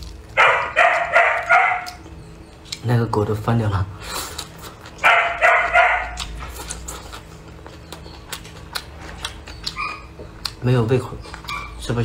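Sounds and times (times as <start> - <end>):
dog barking: 0.4 - 2.0, 5.0 - 6.3.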